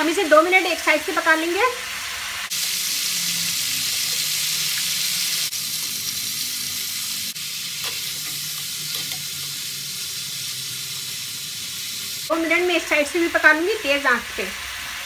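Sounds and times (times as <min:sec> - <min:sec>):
chicken sizzling in oil: 0:00.0 - 0:15.0
spatula moving food in pan: 0:07.7 - 0:09.6.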